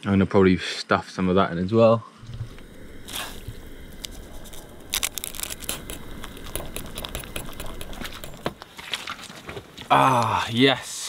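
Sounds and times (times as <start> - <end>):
noodles crackling: 2.2 - 10.4.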